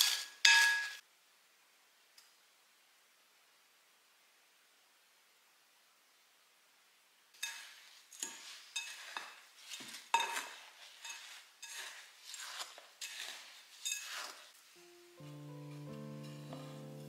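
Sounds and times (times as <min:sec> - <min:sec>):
wooden spoon scraping glass bowl: 0:07.4 - 0:14.6, 0:15.7 - 0:17.0.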